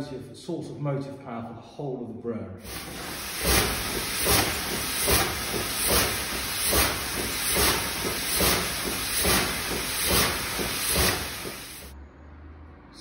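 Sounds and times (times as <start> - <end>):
steam engine chuffing: 2.6 - 12.0.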